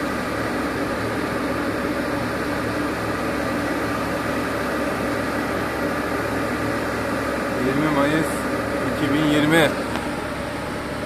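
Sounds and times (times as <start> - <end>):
boat hoist machine drone: 0.0 - 11.0.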